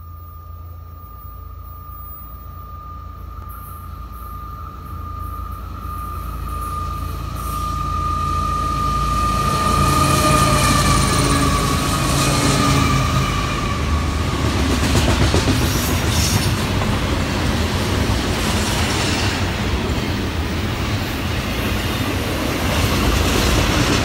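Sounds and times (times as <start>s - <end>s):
steady high tone: 0.0s - 15.0s
diesel locomotives rumbling past: 0.0s - 24.0s.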